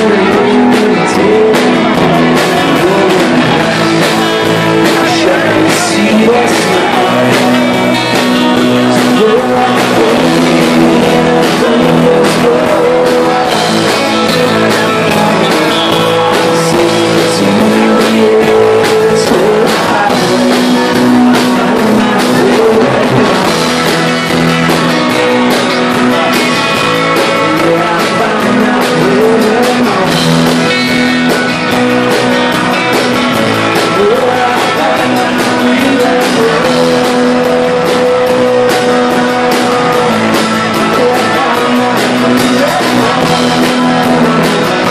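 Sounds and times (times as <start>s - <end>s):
electric bass: 0.0s - 44.9s
electric guitars: 0.0s - 44.9s
person singing lead vocal: 0.0s - 44.9s.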